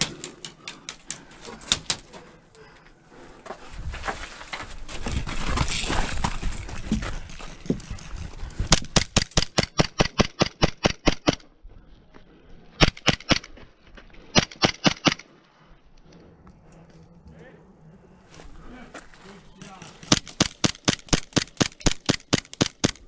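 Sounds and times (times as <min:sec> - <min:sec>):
rustling of movement: 0:00.0 - 0:10.6, 0:11.2 - 0:23.0
airsoft pistol shots: 0:12.8 - 0:13.5, 0:14.4 - 0:15.2.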